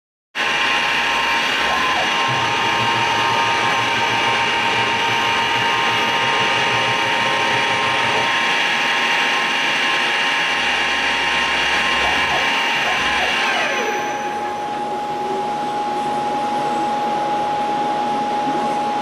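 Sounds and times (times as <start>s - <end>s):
low drone: 0.4s - 16.9s
milling machine whine: 0.4s - 19.0s.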